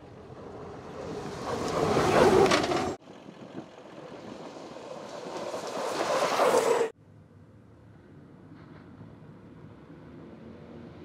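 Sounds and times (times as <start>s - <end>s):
race car passing on dirt: 0.0s - 7.0s.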